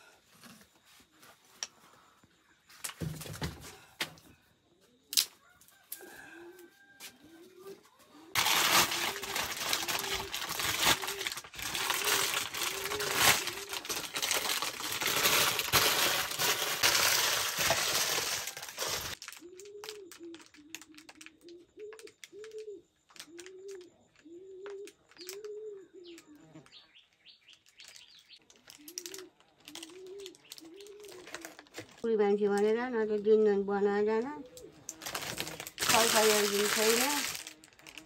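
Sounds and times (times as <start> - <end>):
dove cooing: 4.7 - 16.8, 17.5 - 26.8, 28.7 - 31.7, 34.2 - 38.0
plastic bag crinkling: 8.3 - 23.8, 27.5 - 32.1, 34.8 - 38.0
plastic crackling by hand: 8.3 - 25.5, 27.4 - 32.1, 34.6 - 38.0.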